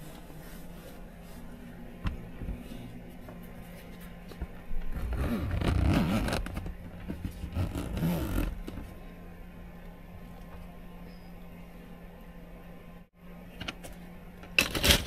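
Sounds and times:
zipper being run: 0:05.0 - 0:06.6, 0:07.3 - 0:08.7.

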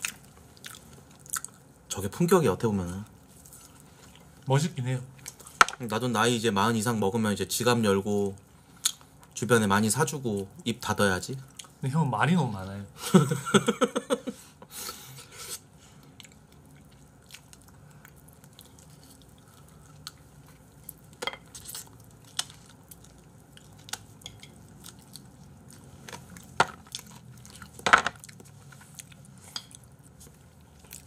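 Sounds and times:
chewing crunchy food: 0:00.0 - 0:01.8, 0:16.0 - 0:31.0
person laughing: 0:13.0 - 0:14.5.

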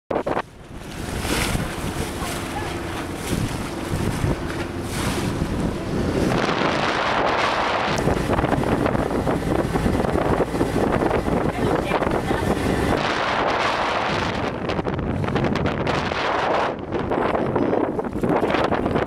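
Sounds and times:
water splashing along boat hull: 0:00.1 - 0:19.0
wind buffeting microphone: 0:00.1 - 0:19.0.

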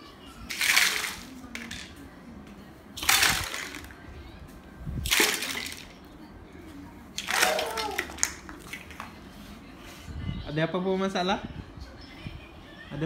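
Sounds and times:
plastic toys scraping and clattering: 0:00.5 - 0:02.0, 0:03.0 - 0:04.0
broom sweeping on tiled floor: 0:08.6 - 0:10.2.

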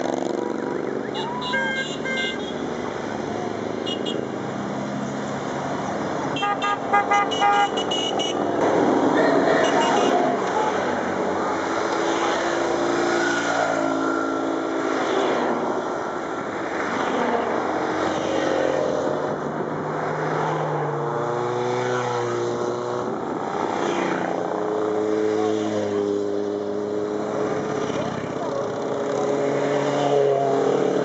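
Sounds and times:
motorcycles riding past: 0:00.0 - 0:06.4, 0:20.0 - 0:31.0.

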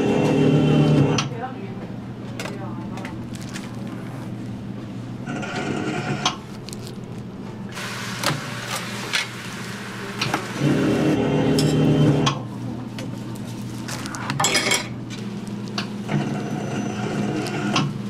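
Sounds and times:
slicer motor hum: 0:15.7 - 0:18.0.

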